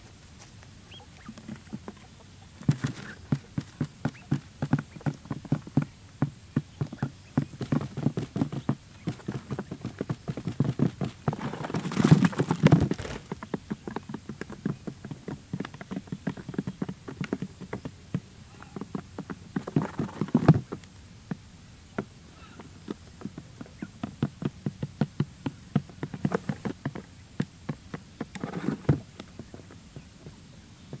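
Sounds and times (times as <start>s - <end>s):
bird scuffle: 0.1s - 5.0s, 6.8s - 9.9s, 10.5s - 13.4s, 19.6s - 20.9s, 28.2s - 30.4s.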